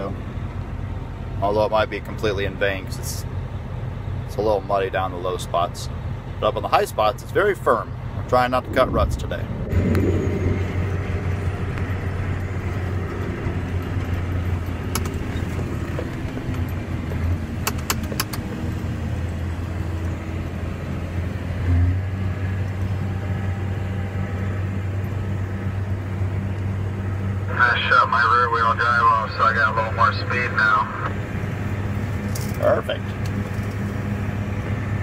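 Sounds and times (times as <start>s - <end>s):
tractor engine drone: 0.0s - 35.0s
sharp clicks: 14.9s - 16.7s, 17.6s - 18.5s.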